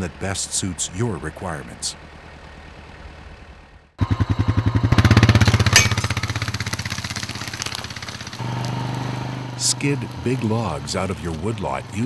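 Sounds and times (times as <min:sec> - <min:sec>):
quad bike engine passing: 0:00.0 - 0:12.0
sharp clack: 0:05.3 - 0:08.1.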